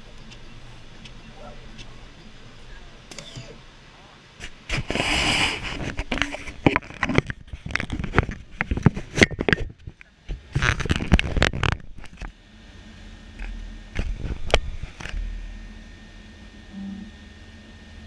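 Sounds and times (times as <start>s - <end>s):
steady hum: 0.0s - 18.0s
camera handling clicks and scrapes: 5.6s - 9.8s.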